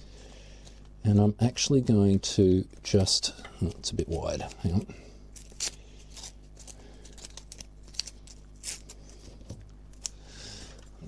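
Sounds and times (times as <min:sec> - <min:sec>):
tape crinkling: 0:04.0 - 0:10.2
masking tape ripping: 0:05.4 - 0:09.0.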